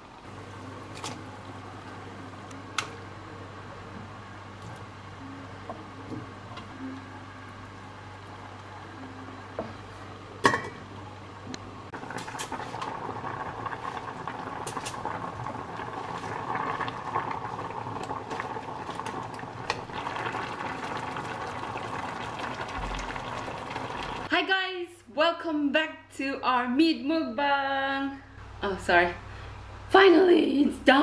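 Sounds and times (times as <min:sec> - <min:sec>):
broth boiling and bubbling: 0:00.0 - 0:24.3.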